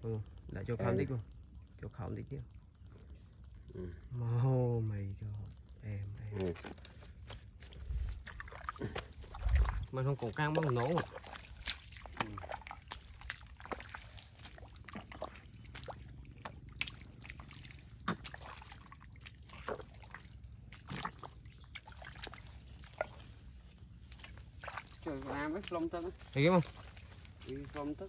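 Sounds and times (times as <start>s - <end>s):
feet squelching through mud: 6.4s - 28.0s.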